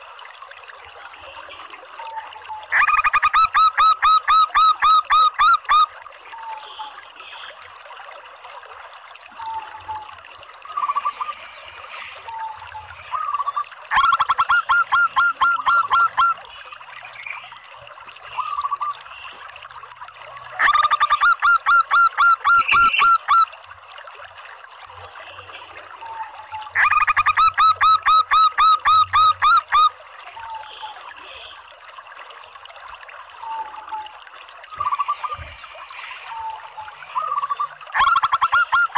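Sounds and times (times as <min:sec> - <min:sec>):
dove calling rapid notes: 0:02.7 - 0:05.9, 0:13.1 - 0:16.4, 0:20.6 - 0:23.5, 0:26.8 - 0:29.9, 0:37.2 - 0:38.9.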